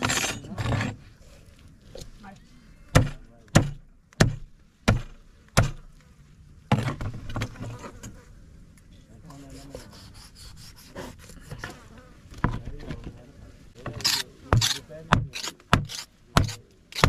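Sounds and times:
knife cutting and scraping flesh: 9.3s - 11.8s, 13.9s - 17.0s.

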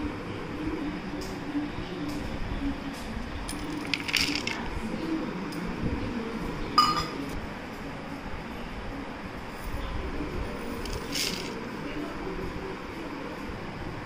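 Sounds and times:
dish clinking against dish: 6.8s - 7.4s.

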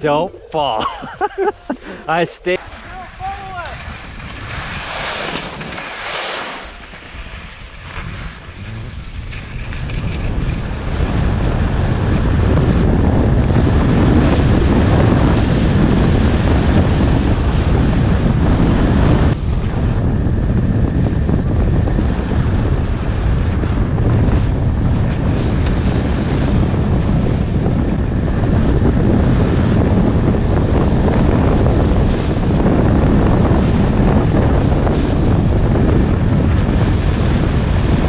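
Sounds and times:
wind buffeting microphone: 0.0s - 38.0s
skis hissing on snow: 1.6s - 9.0s.

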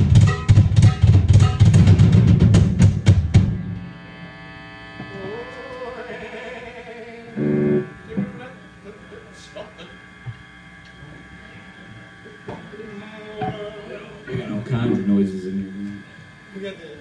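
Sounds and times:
amplifier hum: 2.8s - 17.0s
guitar note sliding up: 3.4s - 16.5s
rock band playing: 7.4s - 8.4s.

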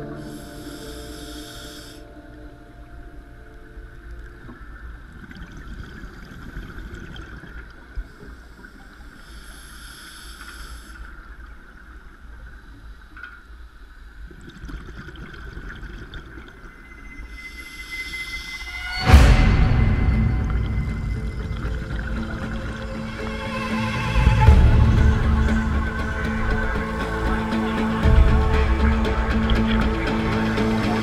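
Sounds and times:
regulator breathing underwater: 0.0s - 2.1s
hiss of breath: 0.2s - 2.1s, 9.2s - 11.1s.

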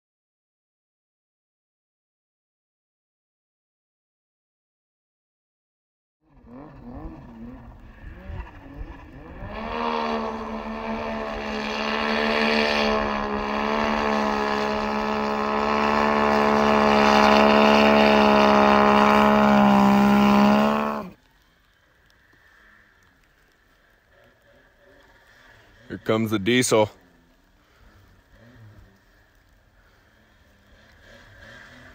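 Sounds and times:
snowmobile engine revving: 6.2s - 21.2s, 22.2s - 31.9s.

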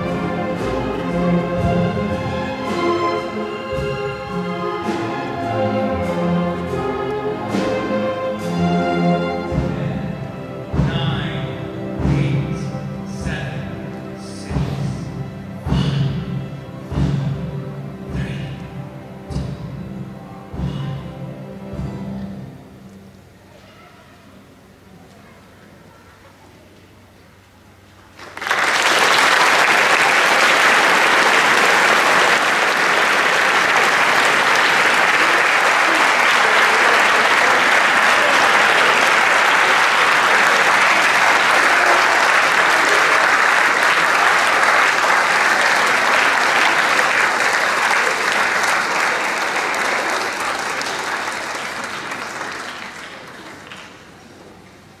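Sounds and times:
audience applauding: 28.1s - 54.4s.

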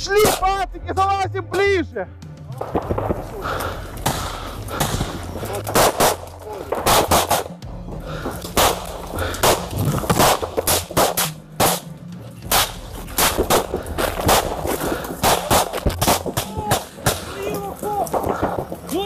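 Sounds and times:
rifle shots: 4.0s - 7.6s, 8.6s - 11.9s, 12.5s - 17.4s.

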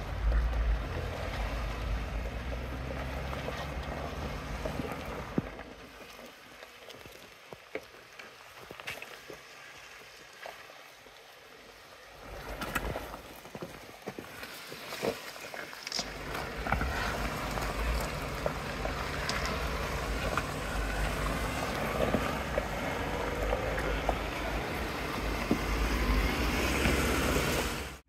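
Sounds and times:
engine running at low revs: 0.0s - 5.7s, 16.0s - 28.0s
stones crunching under tyres: 0.0s - 11.1s, 11.9s - 27.9s
wind rumbling on microphone: 16.0s - 28.0s.

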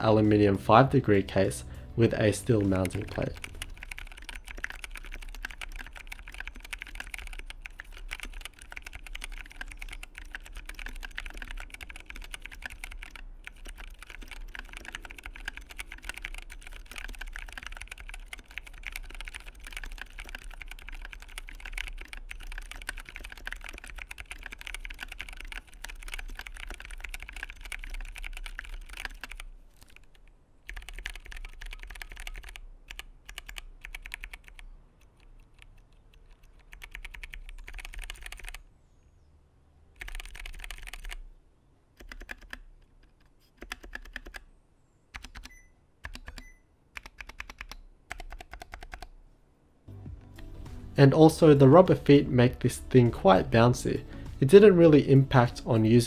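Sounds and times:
mechanical keyboard key clacks: 2.6s - 30.1s, 30.7s - 38.6s, 42.0s - 42.6s, 45.2s - 49.1s.

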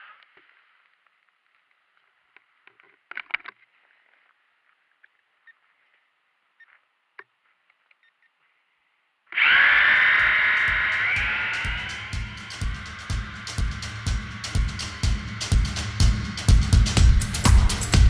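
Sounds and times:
faint muffled hiss: 0.0s - 9.3s
loud music: 10.2s - 18.0s.

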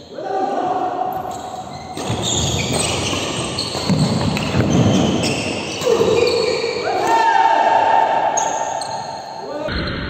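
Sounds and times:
shoes squeaking on court: 1.1s - 6.8s, 8.4s - 9.4s.

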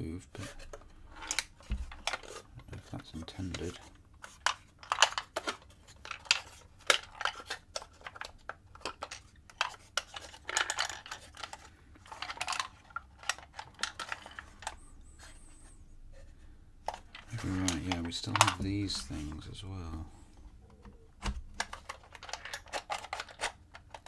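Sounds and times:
wooden puzzle box clicks and rattles: 0.4s - 14.8s, 16.8s - 19.5s, 20.6s - 24.0s.

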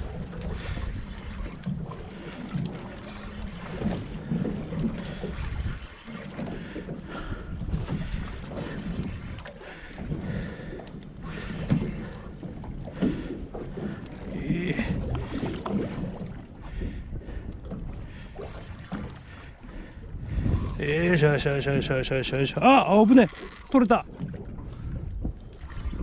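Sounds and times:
water against boat hull: 0.0s - 26.0s
wind buffeting microphone: 0.0s - 26.0s.

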